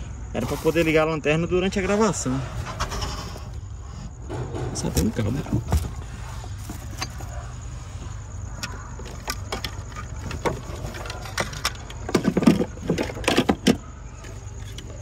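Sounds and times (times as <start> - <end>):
objects clicking and rattling: 8.1 - 15.0.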